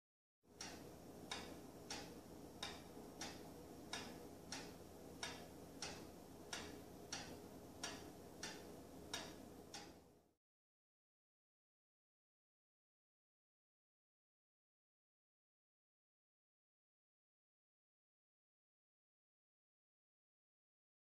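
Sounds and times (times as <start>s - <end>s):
pendulum wall clock ticking: 0.5s - 10.2s.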